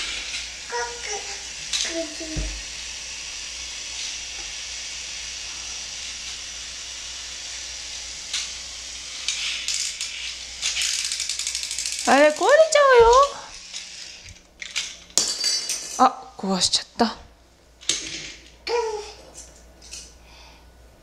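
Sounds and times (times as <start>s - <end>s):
plastic toy train clicking: 9.2s - 15.0s.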